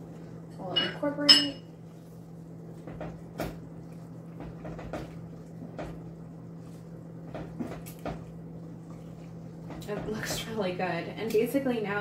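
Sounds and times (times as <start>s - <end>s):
steady low hum: 0.0s - 12.0s
wooden spoon knocking on pot: 2.8s - 3.6s, 4.4s - 6.1s.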